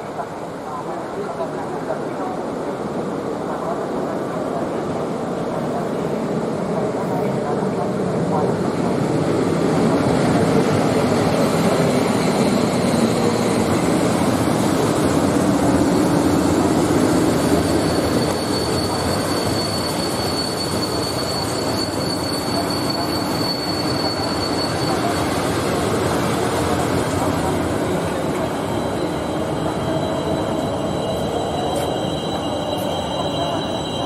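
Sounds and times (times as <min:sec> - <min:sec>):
train rail and wheel noise: 0:00.0 - 0:34.0
high-pitched squeal: 0:17.2 - 0:25.5, 0:28.1 - 0:34.0.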